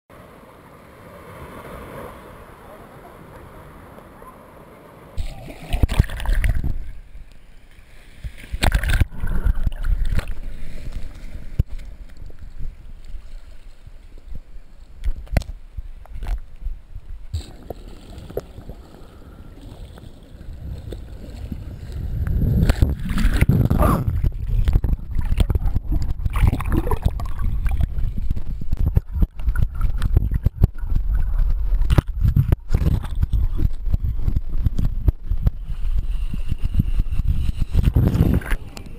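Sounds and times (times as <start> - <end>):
seawater sloshing and splashing: 5.2 - 7.0, 7.8 - 14.2, 17.4 - 38.8.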